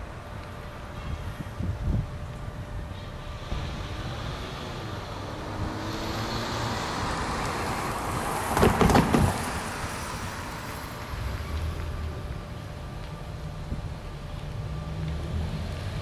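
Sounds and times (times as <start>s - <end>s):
cars driving past: 3.0s - 13.2s, 13.9s - 16.0s
tyres thumping over crossing: 5.3s - 10.3s.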